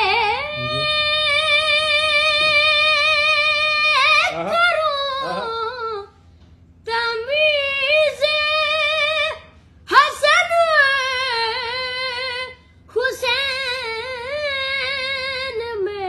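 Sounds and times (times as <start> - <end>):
high solo voice singing: 0.0 - 3.3.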